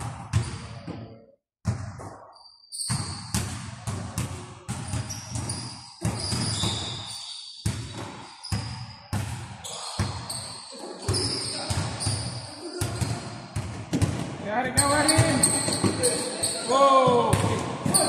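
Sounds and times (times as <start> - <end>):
basketball bouncing on hardwood: 12.8 - 16.1.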